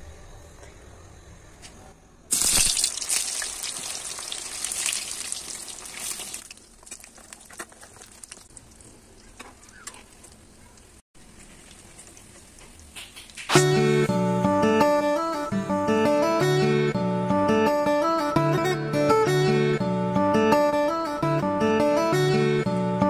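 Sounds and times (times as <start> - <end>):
food sizzling in hot oil: 2.3 - 9.2
oil popping: 2.3 - 13.8.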